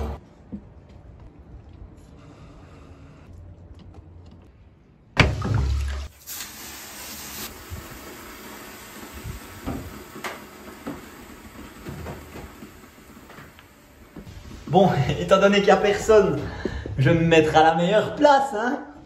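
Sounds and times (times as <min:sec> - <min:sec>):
water hissing on hot stones: 0:06.0 - 0:15.7.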